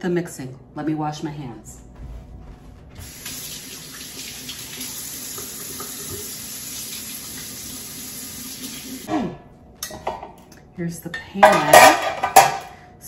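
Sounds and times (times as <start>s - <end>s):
faucet water running into sink: 3.0s - 9.1s.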